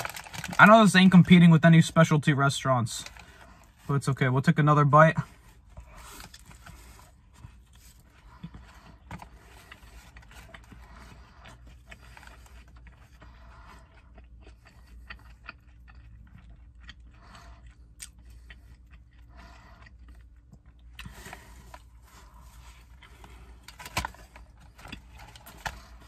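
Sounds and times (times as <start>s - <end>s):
person chewing food: 5.3s - 26.0s.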